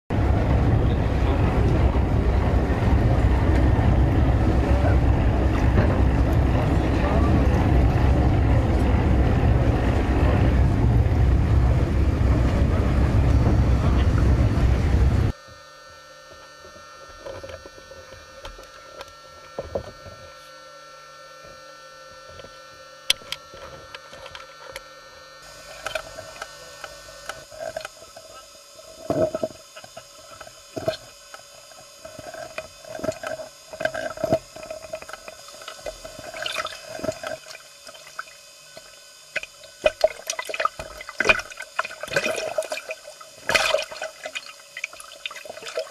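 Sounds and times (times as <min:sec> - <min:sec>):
wind on microphone: 0:00.1 - 0:15.3
boat engine hum: 0:00.1 - 0:15.4, 0:21.5 - 0:45.9.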